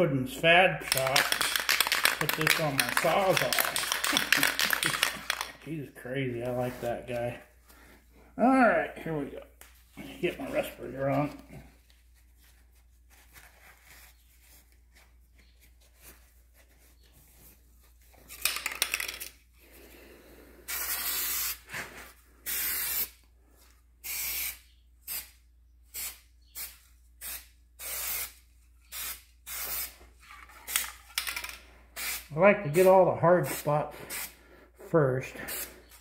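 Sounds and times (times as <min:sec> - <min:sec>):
spray can hissing: 0:00.9 - 0:05.5, 0:20.7 - 0:21.6, 0:22.5 - 0:23.1, 0:24.0 - 0:30.0, 0:32.0 - 0:32.3.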